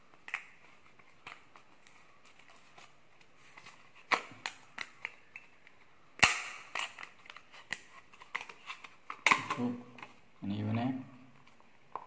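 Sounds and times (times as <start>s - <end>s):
loud plastic snap: 6.2s - 7.1s.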